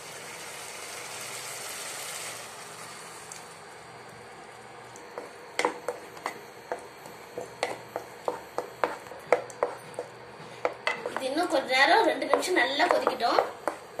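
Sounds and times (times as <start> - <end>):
spatula clacking against pan: 12.2 - 14.0.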